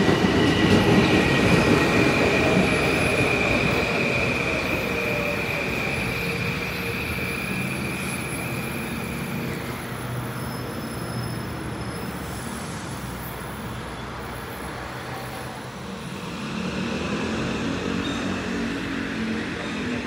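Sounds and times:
electric train rumble and hum: 0:00.0 - 0:13.1.

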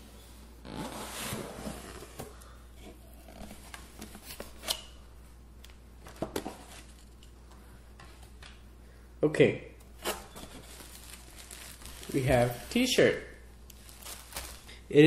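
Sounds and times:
cardboard box and paper rustling: 0:10.0 - 0:12.9, 0:13.8 - 0:14.7.

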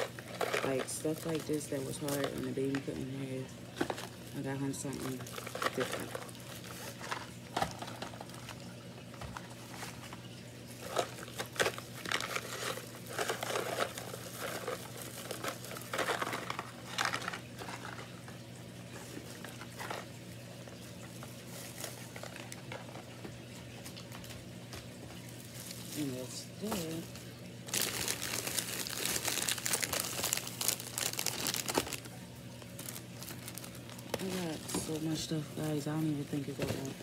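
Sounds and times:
plastic bags crinkling: 0:00.0 - 0:23.2, 0:23.8 - 0:37.0.

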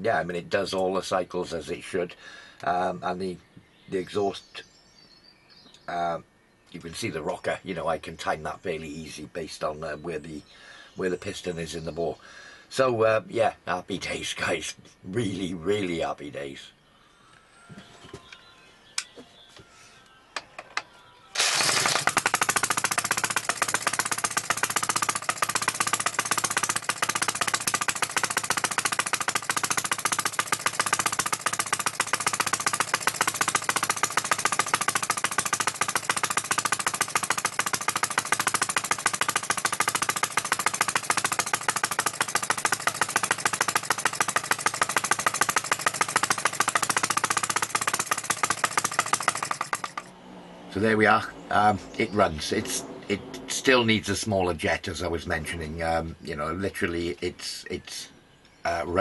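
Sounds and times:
engine popping: 0:21.4 - 0:50.1
model engine running: 0:21.4 - 0:50.1.

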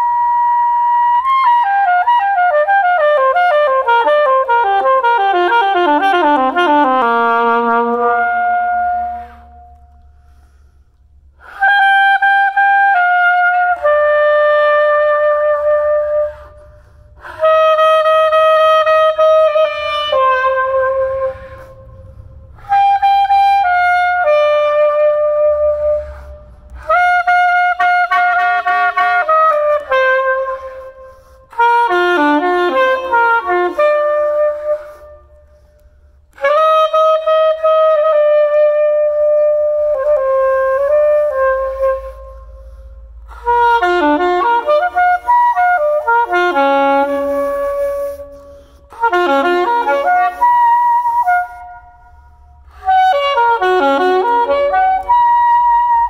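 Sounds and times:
soprano saxophone melody: 0:00.0 - 0:10.6, 0:11.4 - 0:56.0
low rumble: 0:16.1 - 0:23.8.

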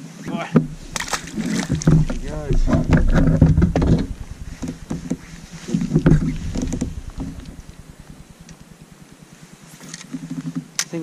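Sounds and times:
water lapping: 0:00.5 - 0:09.8
knocks against plastic hull: 0:00.6 - 0:08.3.

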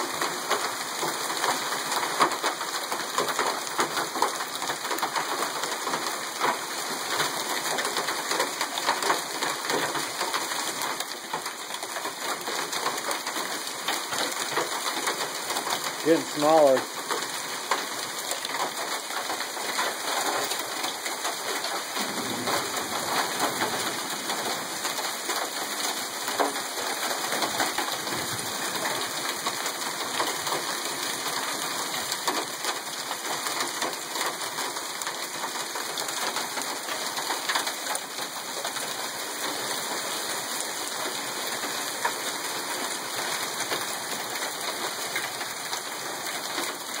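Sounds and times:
heavy rain and hail falling: 0:00.0 - 0:47.0.

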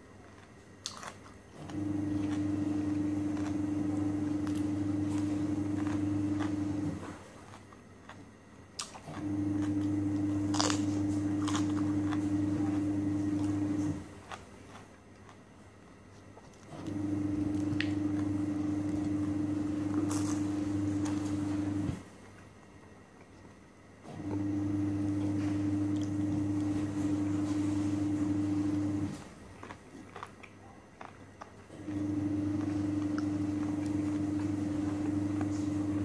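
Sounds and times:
chewing: 0:00.0 - 0:22.6, 0:24.2 - 0:36.0
low steady hum: 0:00.0 - 0:36.0
cucumber crunch bite: 0:00.3 - 0:15.4, 0:19.9 - 0:22.0, 0:29.1 - 0:31.6.

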